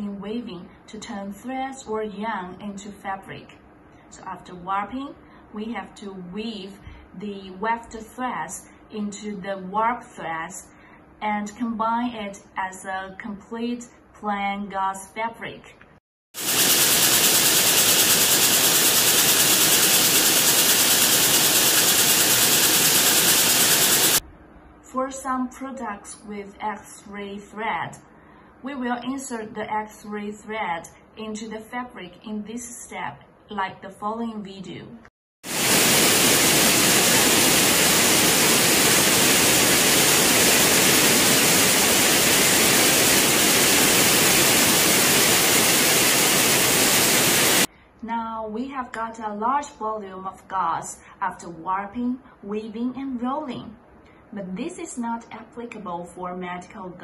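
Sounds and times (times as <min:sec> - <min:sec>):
power loom clattering: 0:16.4 - 0:24.2
weaving looms running: 0:16.4 - 0:24.2, 0:35.5 - 0:47.7.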